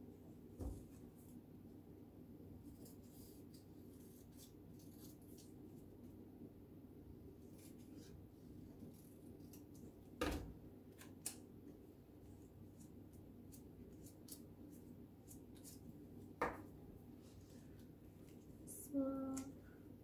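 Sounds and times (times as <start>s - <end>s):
low room hum: 0.0s - 20.0s
scissors snipping paper: 2.7s - 5.6s.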